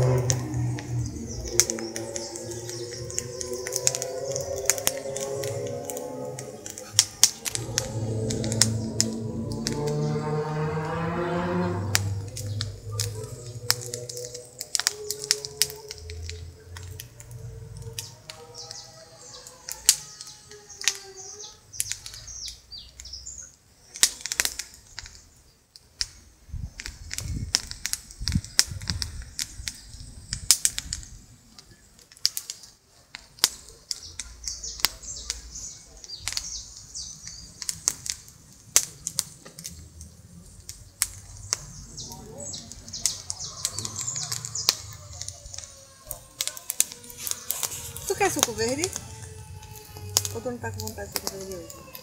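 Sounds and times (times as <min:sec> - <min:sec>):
sharp irregular clicks: 0:00.0 - 0:10.7, 0:11.9 - 0:21.1, 0:21.7 - 0:23.2, 0:23.9 - 0:25.2, 0:32.0 - 0:52.0
sliding pitched call: 0:00.0 - 0:16.2
wind rumble on microphone: 0:00.0 - 0:18.9, 0:26.4 - 0:31.6
birds chirping: 0:00.0 - 0:25.7, 0:27.7 - 0:52.0.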